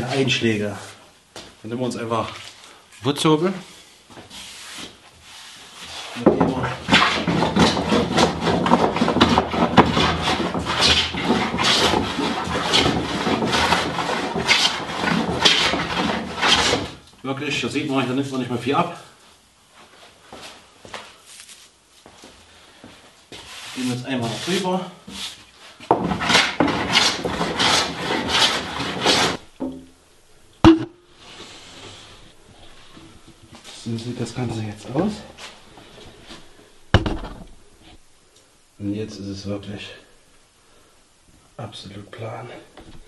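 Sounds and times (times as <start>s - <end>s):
hand plane shaving wood: 6.9s - 16.9s, 26.0s - 29.4s
sharp knock: 30.6s - 31.1s.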